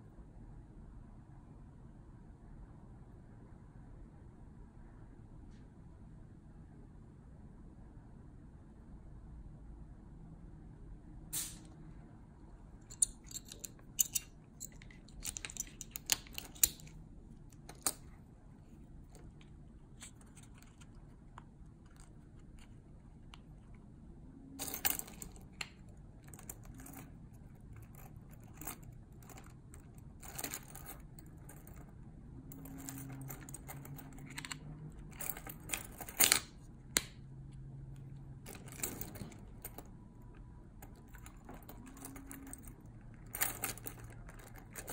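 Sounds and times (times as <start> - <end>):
keys clinking: 12.8 - 18.2, 24.6 - 31.9, 32.5 - 36.5, 38.0 - 39.9, 40.8 - 44.9
plastic parts clicking and snapping: 12.9 - 17.0.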